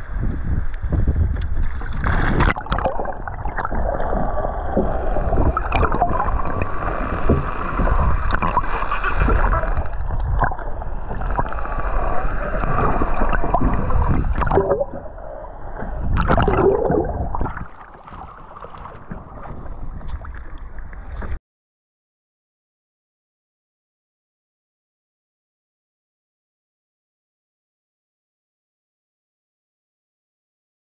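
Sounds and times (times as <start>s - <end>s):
water churning underwater: 0.1s - 21.4s.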